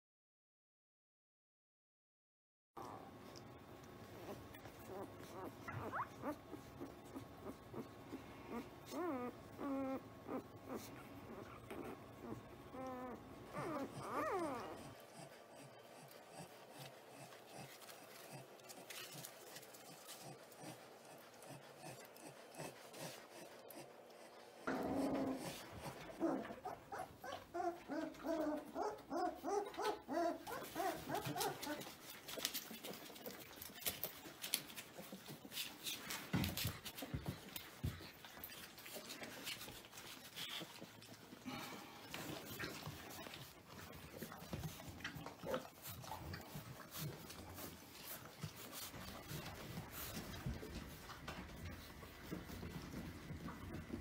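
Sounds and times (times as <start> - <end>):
puppies rustling on a blanket: 3.2 - 54.0
puppies whimpering and squealing: 4.1 - 19.0, 21.4 - 34.0.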